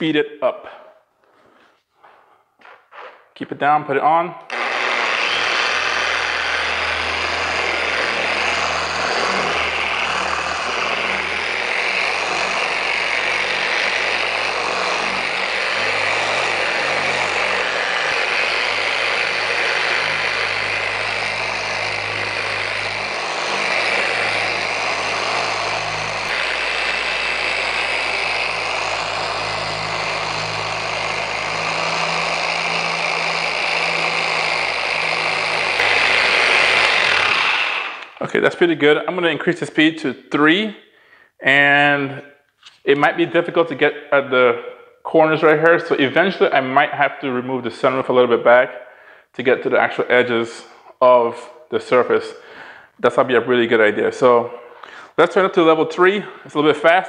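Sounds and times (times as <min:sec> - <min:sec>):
orbital polisher motor hum: 0:04.5 - 0:38.2.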